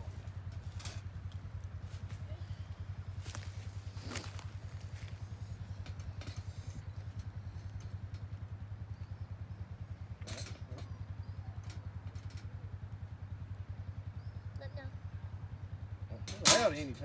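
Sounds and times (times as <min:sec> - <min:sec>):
wire cage trap clinking: 0:00.5 - 0:01.1, 0:03.2 - 0:08.4, 0:10.2 - 0:11.0, 0:16.2 - 0:17.0.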